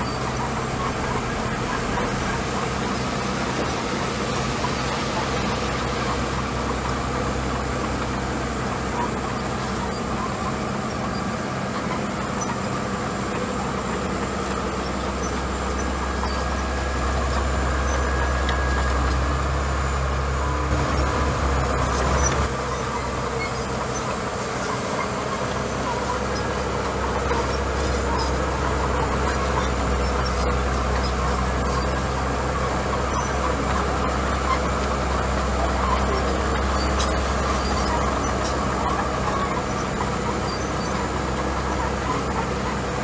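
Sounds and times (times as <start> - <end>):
bulldozer diesel engine running: 0.0 - 43.0.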